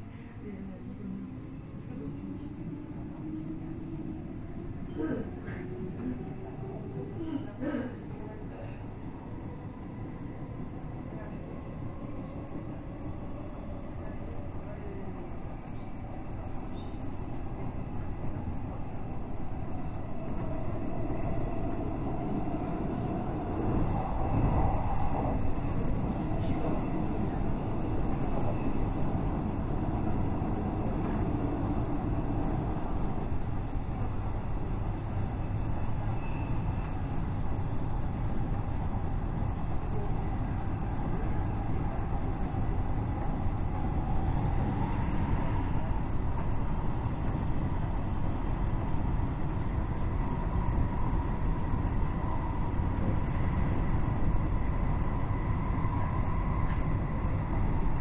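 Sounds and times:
faint train whine: 0:00.0 - 0:58.0
train interior rumble: 0:00.0 - 0:58.0.

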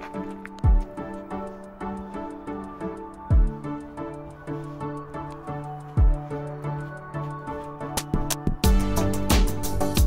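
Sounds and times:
instrumental background music: 0:00.0 - 0:10.0
drum beat with deep kick: 0:00.6 - 0:01.0, 0:03.3 - 0:03.6, 0:06.0 - 0:06.3, 0:08.0 - 0:10.0.

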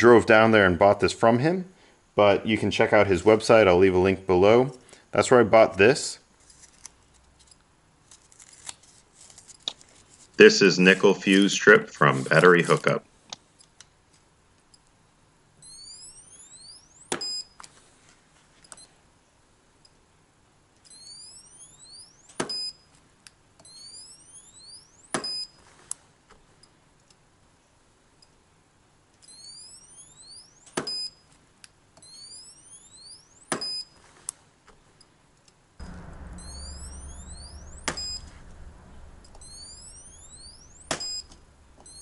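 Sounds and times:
rising electronic chirps: 0:15.6 - 0:17.4, 0:20.9 - 0:22.7, 0:23.6 - 0:25.5, 0:29.3 - 0:31.1, 0:32.0 - 0:33.8, 0:35.8 - 0:42.0
short electronic beep: 0:20.9 - 0:22.8, 0:23.6 - 0:25.5, 0:32.0 - 0:33.9, 0:35.8 - 0:42.0.

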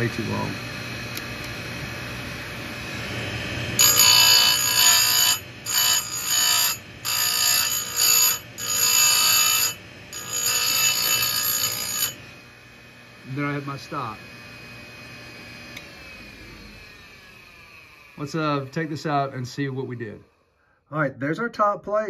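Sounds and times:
grinder motor humming: 0:00.0 - 0:20.4
shrill metal grinding: 0:03.8 - 0:12.2.

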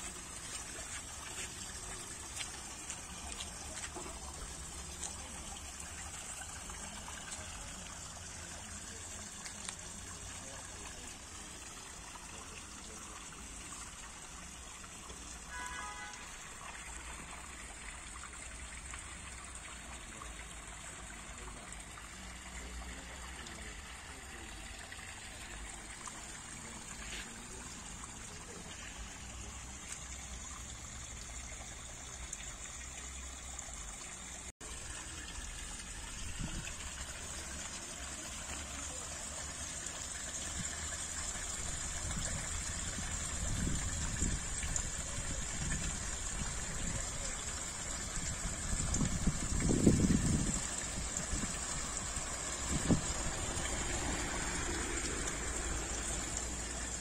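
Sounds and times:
water trickling into pool: 0:00.0 - 0:57.0.

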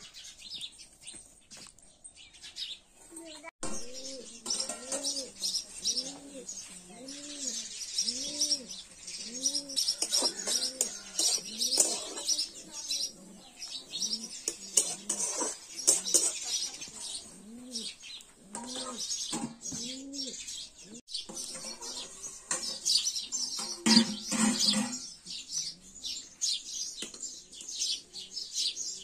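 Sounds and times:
small birds chirping: 0:00.0 - 0:29.0
metal cookware clinking: 0:03.6 - 0:05.3, 0:10.0 - 0:12.3, 0:14.5 - 0:16.5, 0:21.3 - 0:25.1
pigeons cooing: 0:03.7 - 0:26.2.

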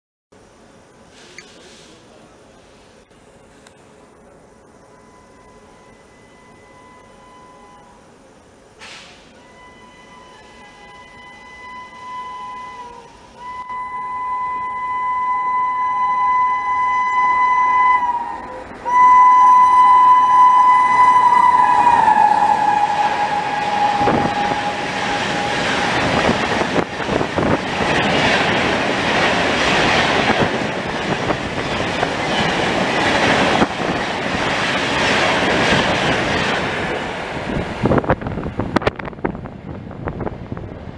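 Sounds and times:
train horn blasts: 0:04.9 - 0:08.0, 0:09.4 - 0:26.8
train rushing past: 0:05.0 - 0:40.9.

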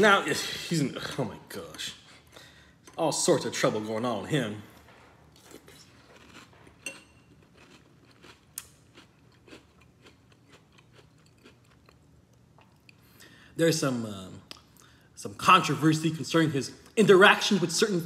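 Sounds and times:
person chewing crunchy cereal: 0:05.3 - 0:13.0.

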